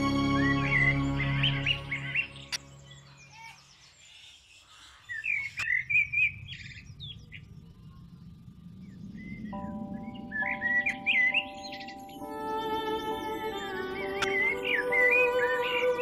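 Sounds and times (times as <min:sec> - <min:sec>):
background music: 0:00.0 - 0:03.1, 0:09.6 - 0:16.0.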